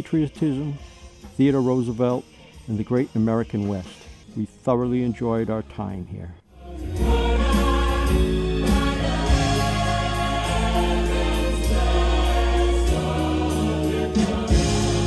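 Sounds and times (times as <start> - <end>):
choir singing: 6.5 - 15.0.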